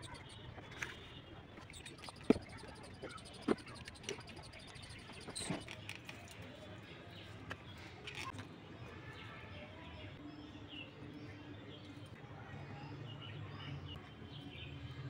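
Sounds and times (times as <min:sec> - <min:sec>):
faint bird chirps: 0:00.0 - 0:06.1.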